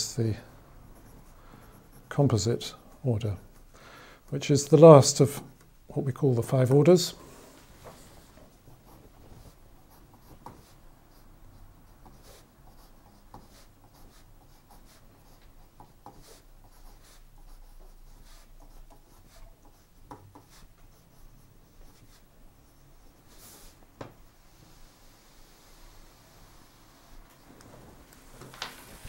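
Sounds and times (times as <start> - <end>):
pen scratching on paper: 0.9 - 2.8, 8.5 - 23.8.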